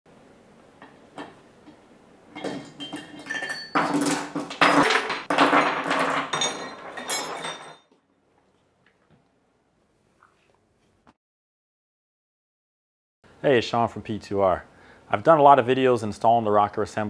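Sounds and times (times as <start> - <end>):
metal parts clinking and clattering: 2.4 - 7.9.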